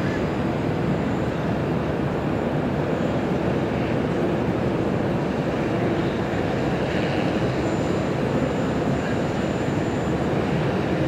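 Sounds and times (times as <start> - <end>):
outdoor rumble and hiss: 0.0 - 11.0.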